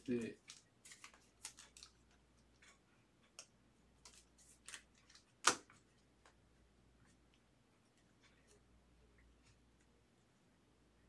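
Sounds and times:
plastic sleeve rustling and clicks: 0:00.0 - 0:06.4.

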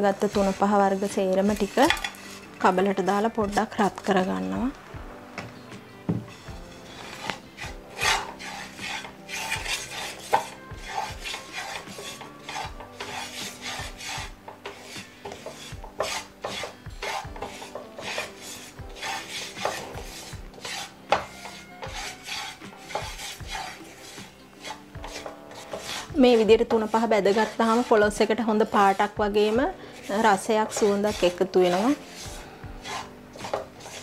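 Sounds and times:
spatula scraping spices in pan: 0:00.0 - 0:04.8, 0:06.3 - 0:34.0
spatula knocking on pan: 0:09.6 - 0:24.2, 0:25.0 - 0:34.0.

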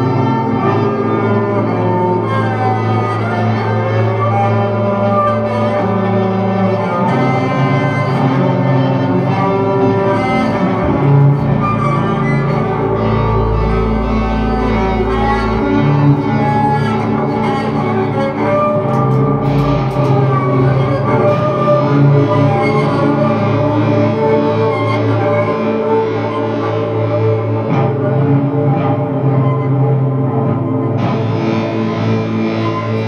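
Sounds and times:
droning electric guitars: 0:00.0 - 0:33.0.

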